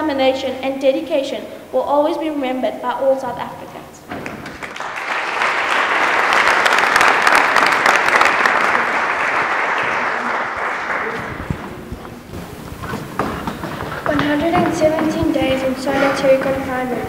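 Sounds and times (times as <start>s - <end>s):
audience applauding: 4.1s - 15.2s.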